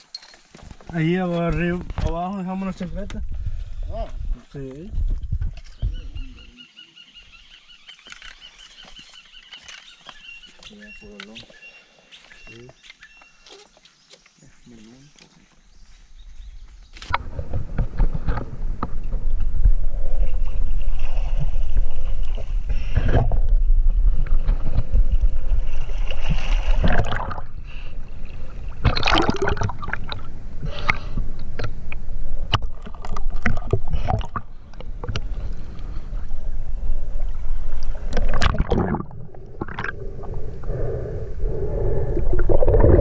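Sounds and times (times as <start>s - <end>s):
water splashing and gurgling: 17.1s - 43.0s.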